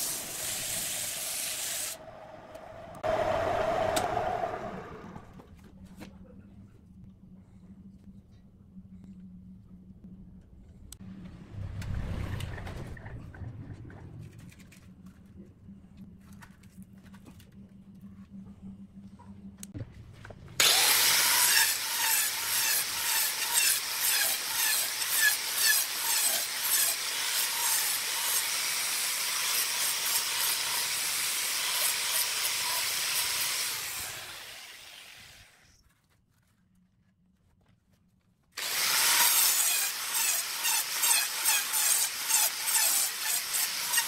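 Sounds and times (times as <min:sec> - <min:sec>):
angle grinder sanding wood: 0:00.0 - 0:02.0, 0:20.6 - 0:35.6, 0:38.6 - 0:44.0.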